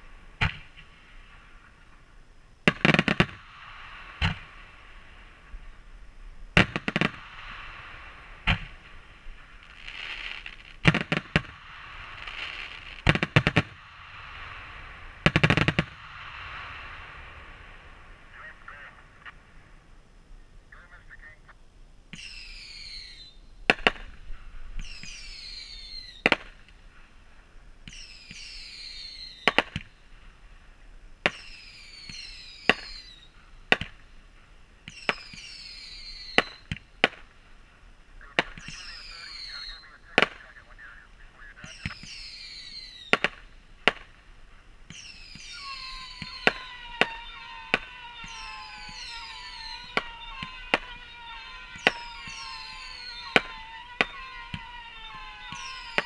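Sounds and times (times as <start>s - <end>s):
firework bangs: 0.0s - 19.8s, 22.2s - 27.0s, 27.8s - 56.0s
firework whistle falling in pitch: 22.2s - 23.4s, 24.8s - 26.3s, 27.9s - 29.7s, 31.3s - 33.3s, 34.9s - 36.7s, 38.6s - 39.9s, 41.7s - 43.4s, 44.9s - 56.0s.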